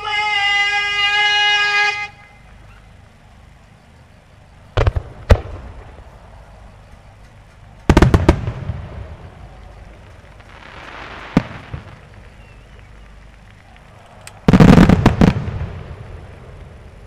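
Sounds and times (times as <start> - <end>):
firework shells bursting: 4.6 - 16.9
firework crackling hiss: 7.4 - 17.0.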